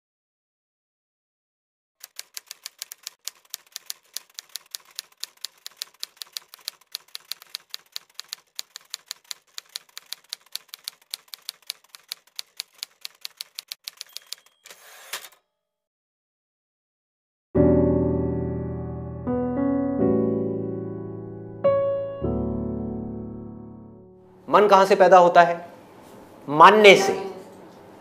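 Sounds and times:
typewriter keys clacking: 2.0s - 14.8s.

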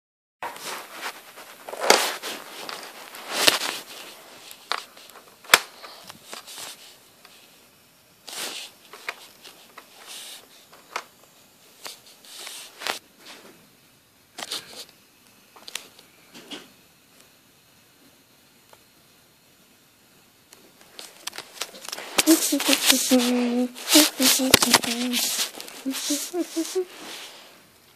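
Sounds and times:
handling rustles: 0.4s - 7.4s, 20.8s - 27.4s.

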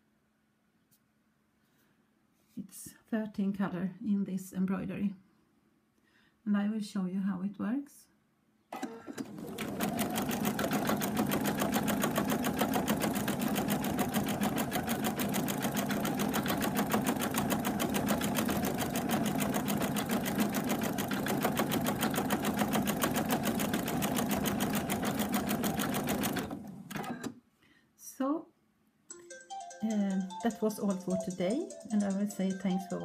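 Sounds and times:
embroidery machine stitching: 8.8s - 27.4s.

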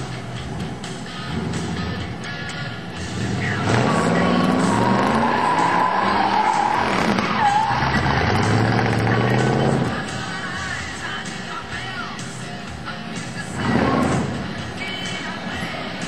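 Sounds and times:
car engine revving hard: 0.2s - 2.2s, 3.0s - 10.2s, 13.5s - 15.8s
tyres squealing: 1.2s - 11.5s.

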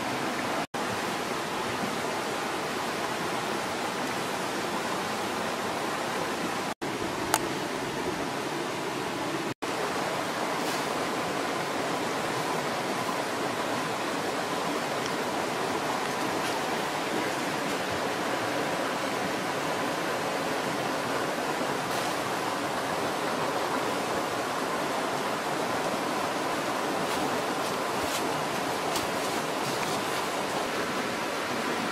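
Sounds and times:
steady rushing noise: 6.8s - 31.9s.

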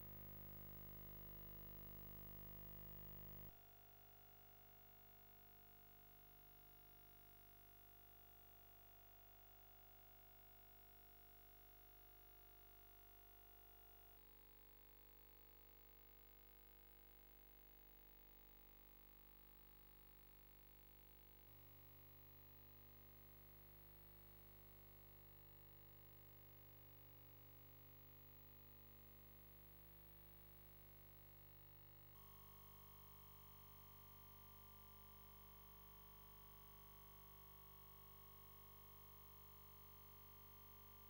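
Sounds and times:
faint electrical hum and hiss: 32.1s - 41.0s.

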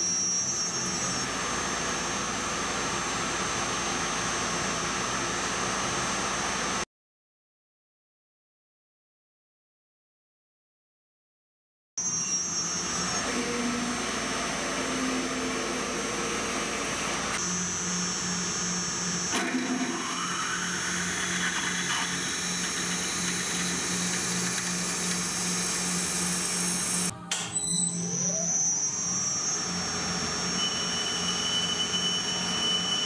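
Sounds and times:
lathe drilling whine: 0.0s - 6.8s, 12.0s - 33.0s.

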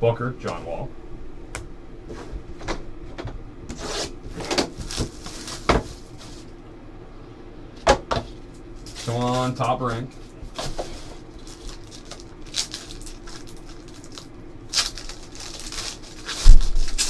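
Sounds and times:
cardboard boxes and cards shuffling: 3.8s - 6.5s, 10.5s - 17.0s.

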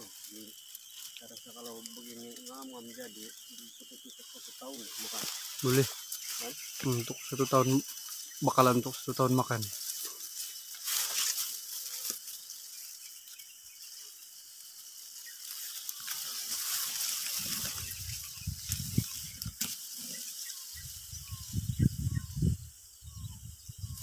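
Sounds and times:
steady high hiss: 0.0s - 24.0s
wind buffeting microphone: 17.4s - 19.6s, 20.8s - 24.0s.

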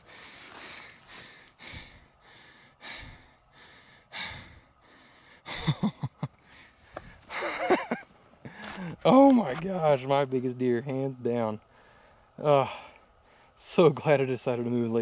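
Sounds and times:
man breathing hard: 0.0s - 5.8s, 6.4s - 7.6s, 8.4s - 9.0s, 11.7s - 13.6s.

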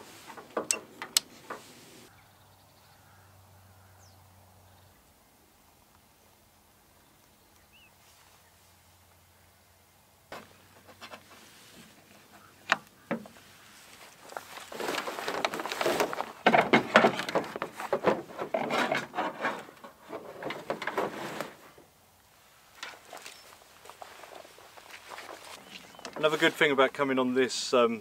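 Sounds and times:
rustling and knocking of gear: 0.0s - 1.8s, 10.3s - 21.8s, 22.7s - 26.6s.

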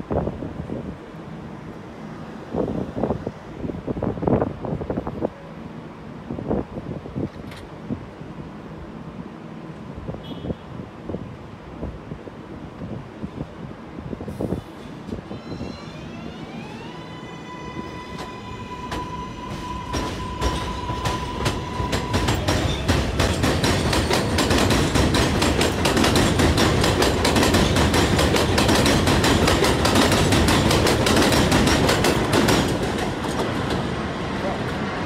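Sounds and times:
wheels clattering over rail joints: 19.5s - 34.0s.

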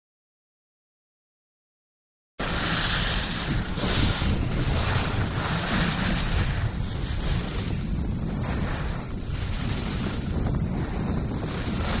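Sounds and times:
wind buffeting microphone: 2.4s - 12.0s.

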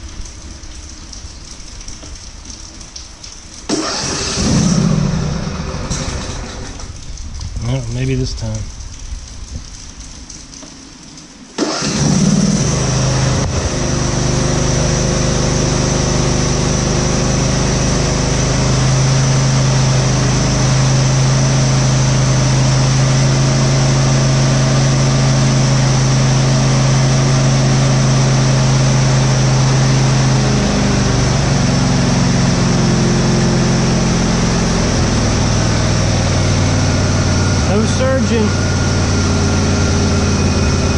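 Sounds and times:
lawn tractor engine running: 3.7s - 7.0s, 11.6s - 40.9s.

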